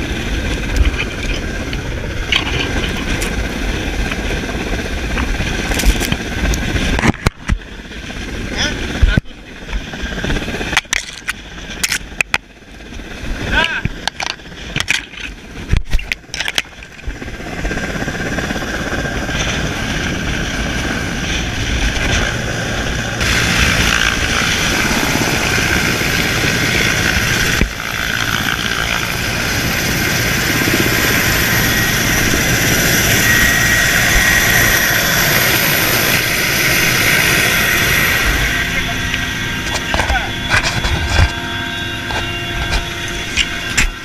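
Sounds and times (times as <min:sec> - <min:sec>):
helicopter hovering: 0:00.0 - 0:44.0
downwash buffeting microphone: 0:17.0 - 0:44.0.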